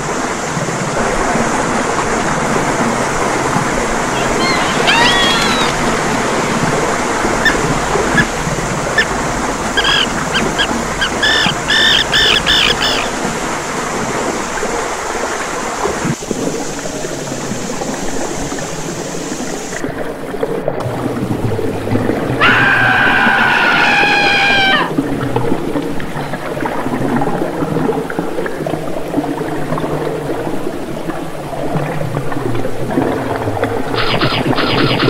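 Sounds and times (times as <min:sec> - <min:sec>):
falling water and surf: 0:00.0 - 0:35.0
seabird calls: 0:03.2 - 0:13.5, 0:22.4 - 0:24.9, 0:34.0 - 0:35.0
wavering cry: 0:04.0 - 0:06.2, 0:09.8 - 0:13.1, 0:22.4 - 0:24.9.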